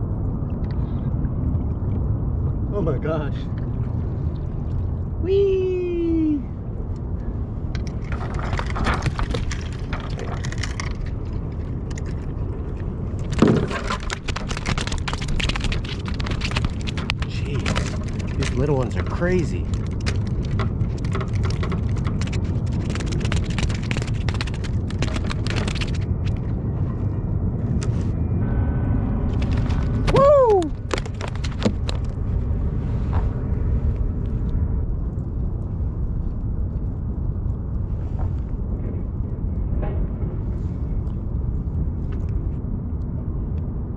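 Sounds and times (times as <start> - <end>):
low steady rumble: 0.0 - 43.9
handling clicks and clatter: 7.7 - 26.5, 29.3 - 32.2.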